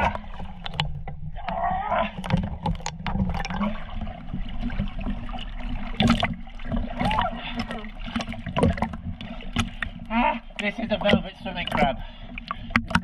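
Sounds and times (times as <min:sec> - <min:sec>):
water sloshing and splashing: 0:00.0 - 0:13.0
sharp splash clicks: 0:02.2 - 0:03.6, 0:06.0 - 0:06.4, 0:12.5 - 0:13.0.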